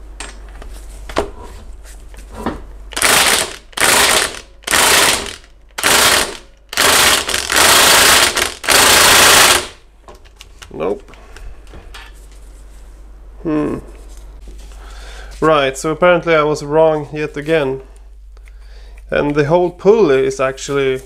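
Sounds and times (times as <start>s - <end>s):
impact driver hammering: 3.0s - 9.8s.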